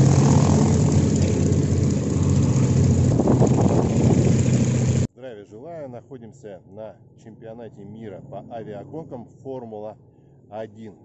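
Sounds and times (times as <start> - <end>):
propeller plane engine running: 0.0 - 5.1.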